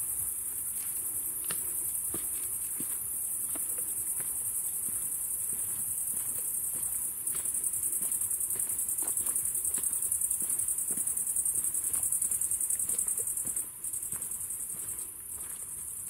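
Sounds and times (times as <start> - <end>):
crickets chirping: 0.0 - 16.0
footsteps on forest floor: 0.2 - 16.0.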